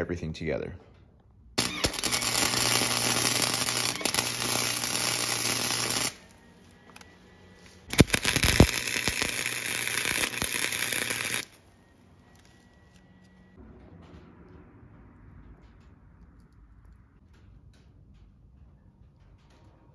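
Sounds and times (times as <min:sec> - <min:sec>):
welding arc crackling: 0:01.6 - 0:07.0, 0:07.8 - 0:11.6.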